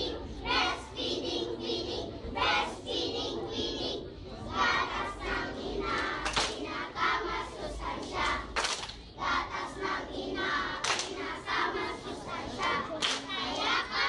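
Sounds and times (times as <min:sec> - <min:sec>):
children shouting and singing: 0:09.4 - 0:14.0.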